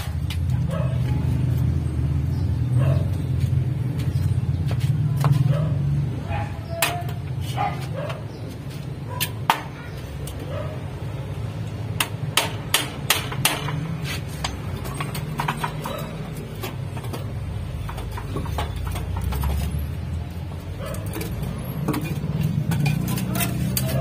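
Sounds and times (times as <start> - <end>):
hammer striking metal frame: 12.0 - 16.0.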